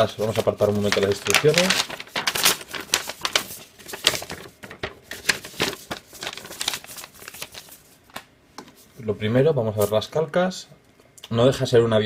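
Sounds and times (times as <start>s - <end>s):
paper rustling and crinkling: 0.0s - 9.0s, 9.8s - 10.1s.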